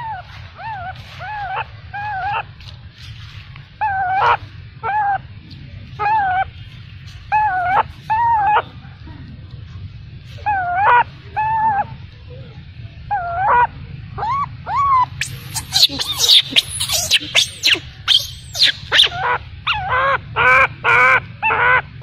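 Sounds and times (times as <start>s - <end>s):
infant monkey crying: 0.0s - 2.5s, 3.8s - 5.2s, 6.0s - 6.5s, 7.3s - 8.7s, 10.4s - 11.9s, 13.1s - 21.9s
low steady hum: 0.0s - 22.0s.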